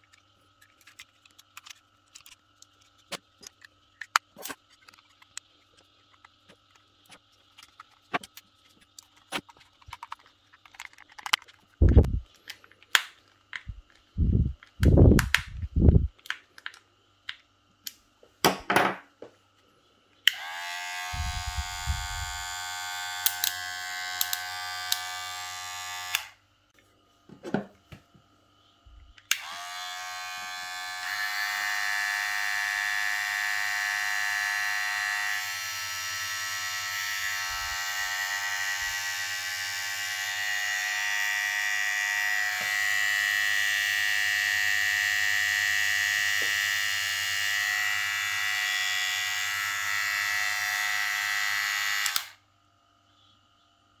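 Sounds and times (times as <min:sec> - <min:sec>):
hair clipper motor whine: 0:11.8 - 0:12.2, 0:20.3 - 0:26.4, 0:29.3 - 0:52.4
higher-pitched trimmer motor: 0:20.3 - 0:26.4, 0:29.3 - 0:52.4.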